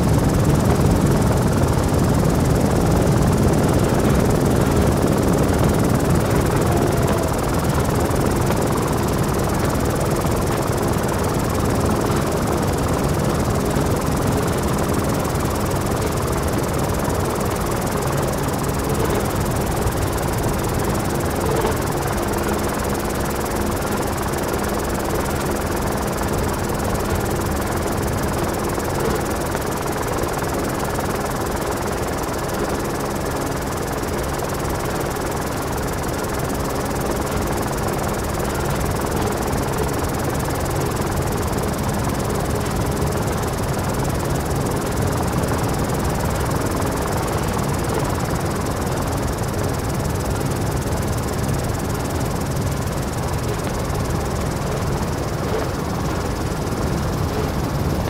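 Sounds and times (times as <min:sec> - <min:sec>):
helicopter rotor and turbine: 0:00.0 - 0:58.0.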